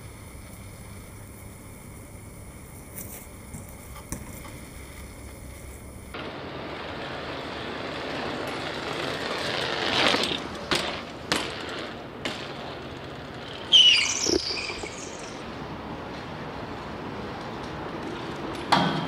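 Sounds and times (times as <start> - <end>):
bike tyres rolling over bricks: 0.5 - 15.3.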